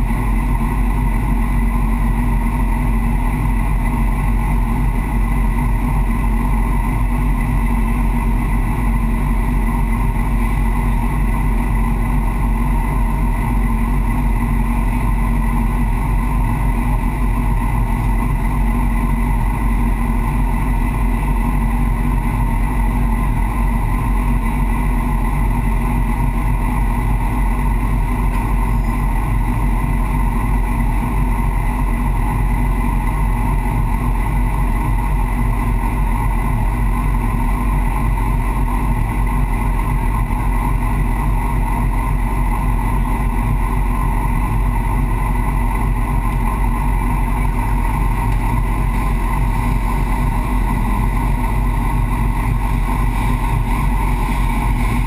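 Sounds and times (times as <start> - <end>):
motorcycle engine idling: 0.0 - 55.0.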